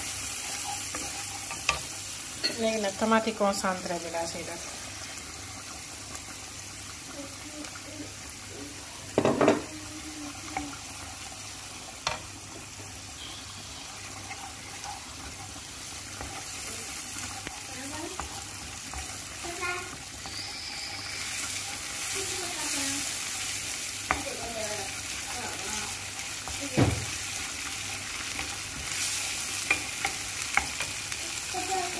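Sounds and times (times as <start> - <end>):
food sizzling in oil: 0.0 - 31.9
wooden spoon stirring: 13.6 - 31.0.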